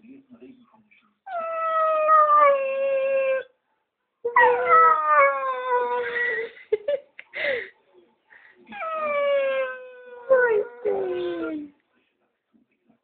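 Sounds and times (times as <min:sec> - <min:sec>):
dog howling: 0:01.3 - 0:03.4, 0:04.3 - 0:06.1, 0:08.7 - 0:11.7.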